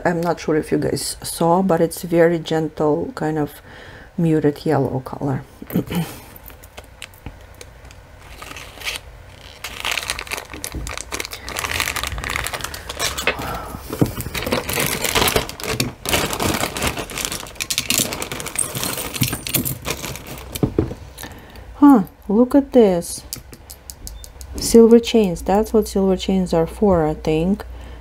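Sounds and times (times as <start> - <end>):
plastic crinkling: 6.4 - 21.0
metal jewelry clinking: 17.3 - 20.6.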